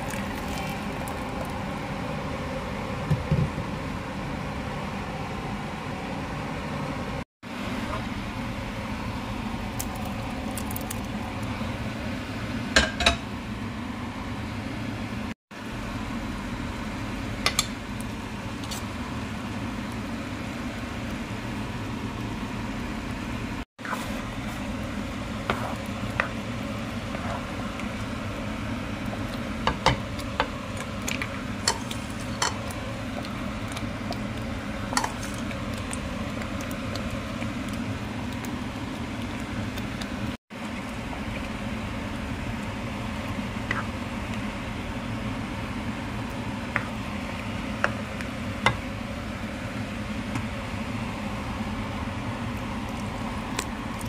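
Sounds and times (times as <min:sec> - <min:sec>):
sauce simmering in a pan: 0:15.6 - 0:54.0.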